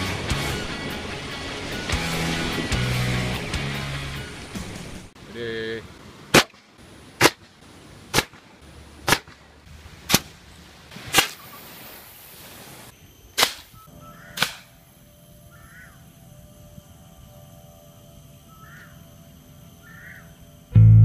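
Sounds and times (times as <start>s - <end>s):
air hiss: 10.9s - 13.8s
compressed-air launcher pops: 14.4s - 14.7s.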